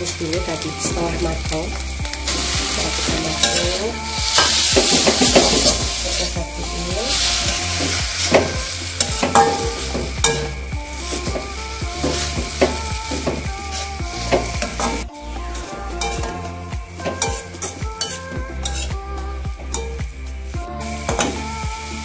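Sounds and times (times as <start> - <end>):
frying sizzle: 0.0 - 22.0
metal spatula scraping a wok: 12.0 - 19.0.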